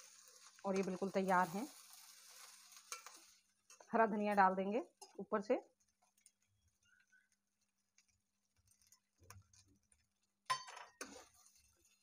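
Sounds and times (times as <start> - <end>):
metal spoon clinking on pan: 2.8 - 3.9, 10.5 - 11.2.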